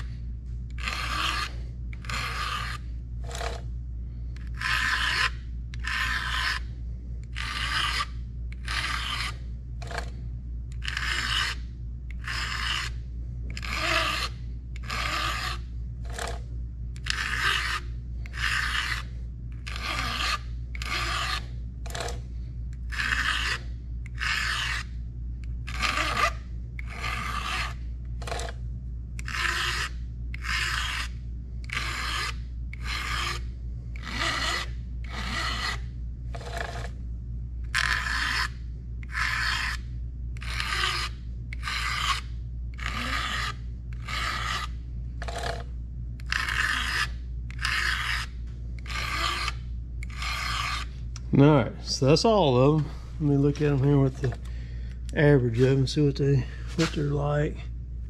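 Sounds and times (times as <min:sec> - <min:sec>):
steady low hum: 0:00.0 - 0:58.0
file rasping on chainsaw chain: 0:00.8 - 0:03.6, 0:04.5 - 0:06.6, 0:07.3 - 0:10.1, 0:10.8 - 0:11.6, 0:12.2 - 0:12.9, 0:13.5 - 0:16.4, 0:17.0 - 0:22.2, 0:22.9 - 0:24.9, 0:25.7 - 0:28.5, 0:29.2 - 0:33.4, 0:34.0 - 0:36.9, 0:37.7 - 0:38.5, 0:39.1 - 0:39.8, 0:40.4 - 0:42.2, 0:42.8 - 0:45.6, 0:46.2 - 0:50.9.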